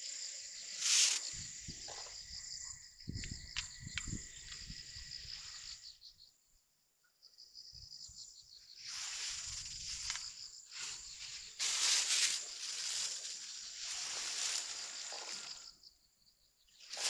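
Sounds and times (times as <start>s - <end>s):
insects chirring: 0.0s - 17.0s
rustling noise bursts: 8.9s - 15.6s.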